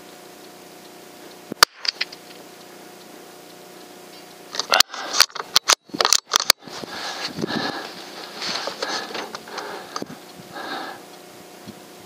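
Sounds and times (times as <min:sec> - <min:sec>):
sharp mechanical clicks: 0:01.3 - 0:07.8.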